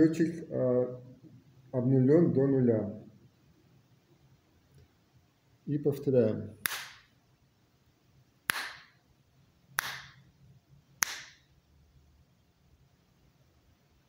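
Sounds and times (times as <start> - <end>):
finger snaps: 6.6 - 7.1, 8.5 - 9.0, 9.8 - 10.2, 11.0 - 11.5.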